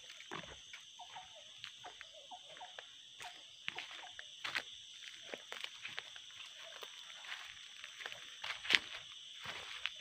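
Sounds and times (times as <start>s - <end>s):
forest insects droning: 0.0s - 10.0s
footsteps on dry leaves: 3.2s - 10.0s.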